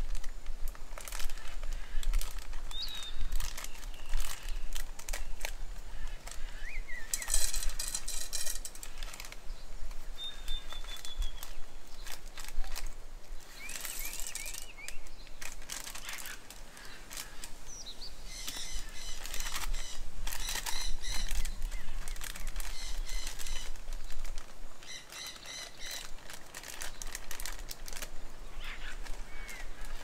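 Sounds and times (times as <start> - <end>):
birds calling and singing: 1.1 - 30.0.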